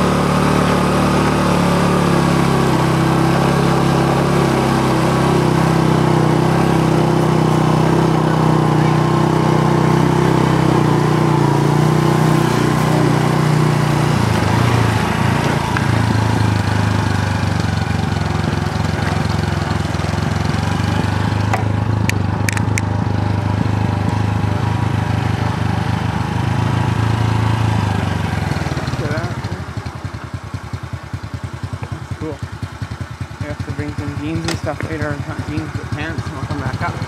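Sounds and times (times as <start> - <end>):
motor scooter engine running: 0.0 - 37.0
sharp clicks: 22.0 - 22.9.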